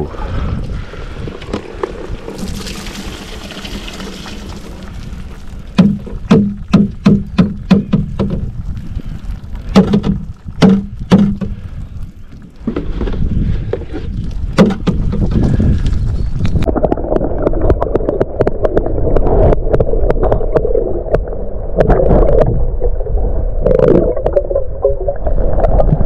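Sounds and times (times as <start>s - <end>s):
fish pouring and splashing: 2.2s - 5.7s.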